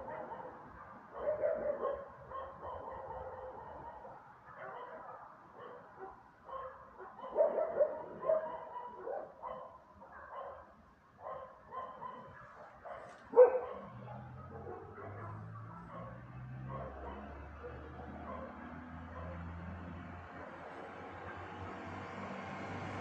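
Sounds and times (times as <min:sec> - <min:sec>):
dogs barking: 0:00.0 - 0:22.2.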